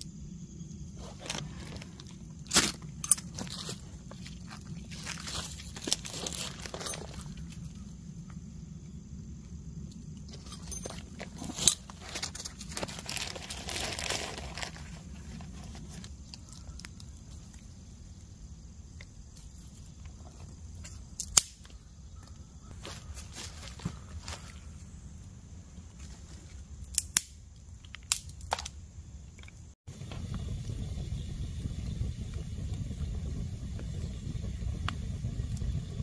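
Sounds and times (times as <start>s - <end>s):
twigs rustling and fire crackling: 0.0s - 36.0s
twigs snapping: 26.9s - 28.8s.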